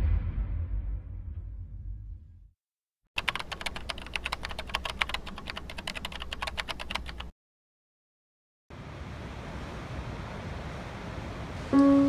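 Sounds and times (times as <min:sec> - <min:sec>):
low intro sound: 0:00.0 - 0:02.5
keyboard typing clicks: 0:03.2 - 0:07.3.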